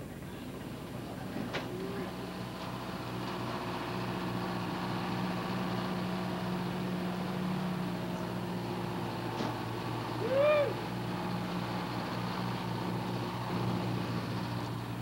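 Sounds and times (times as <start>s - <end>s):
bus engine idling: 0.0s - 15.0s.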